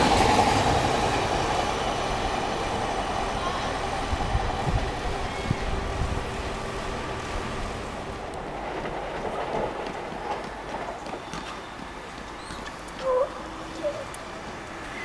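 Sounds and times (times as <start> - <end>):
tram rumbling on rails: 0.0 - 15.0.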